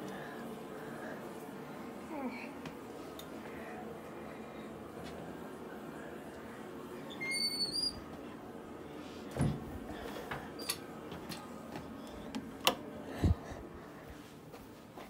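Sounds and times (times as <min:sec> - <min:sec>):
door squeak: 0:07.1 - 0:08.0.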